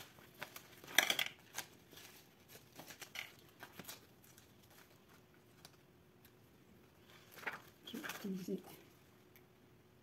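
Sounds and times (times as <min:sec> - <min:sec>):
thin plastic crinkling: 0:00.0 - 0:06.4, 0:07.0 - 0:09.0.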